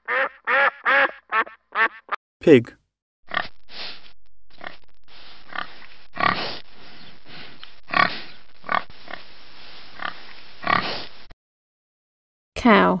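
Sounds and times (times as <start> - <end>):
pig grunting: 5.5 - 6.6, 7.9 - 9.2, 10.0 - 11.1.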